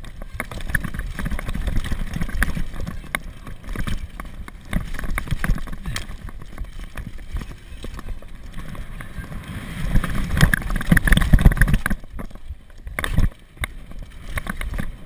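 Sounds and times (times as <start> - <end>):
bike clicking and knocking: 0.0 - 9.2, 10.0 - 15.0.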